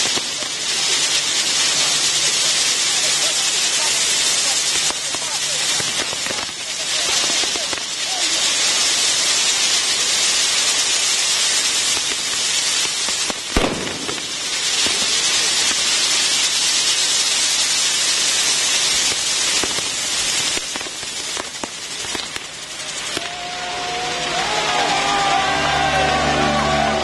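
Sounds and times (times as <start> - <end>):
fireworks crackling: 0.0 - 27.0
fireworks sparks hissing: 0.0 - 27.0.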